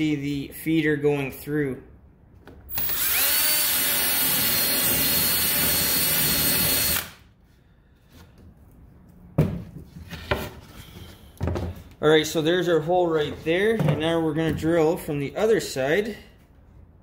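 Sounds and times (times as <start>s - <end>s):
drill whining through plywood: 2.7s - 7.2s.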